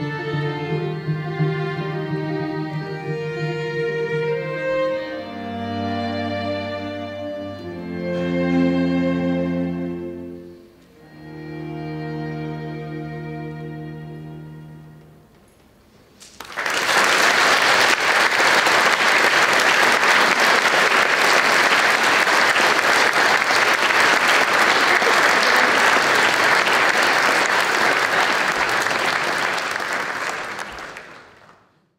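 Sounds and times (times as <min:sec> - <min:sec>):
congregation applauding: 0:16.2 - 0:31.8.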